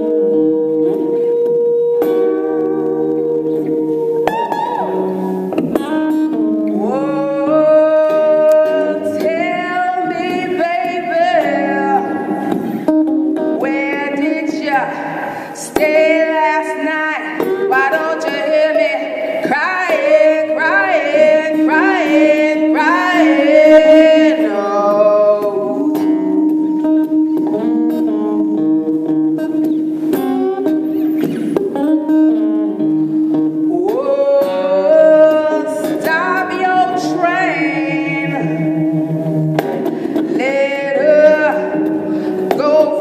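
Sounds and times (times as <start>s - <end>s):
electric guitar sliding pitches: 0.0s - 43.0s
wordless singing: 13.6s - 27.4s, 33.7s - 39.4s, 40.2s - 43.0s.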